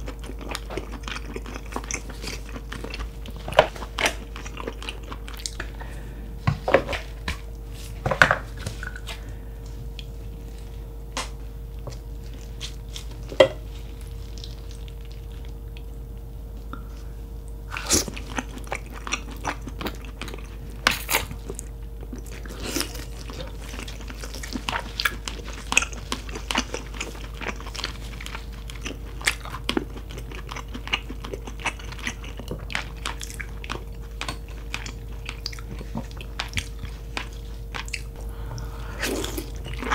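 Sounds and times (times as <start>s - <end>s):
biting and chewing: 0.0s - 5.7s, 17.7s - 38.3s
faint steady hum: 0.0s - 39.9s.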